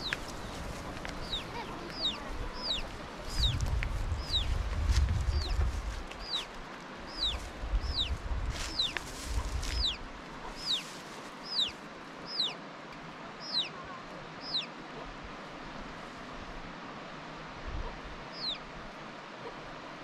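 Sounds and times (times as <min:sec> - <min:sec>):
wind rumble on microphone: 0:00.0 - 0:10.8, 0:17.5 - 0:18.2.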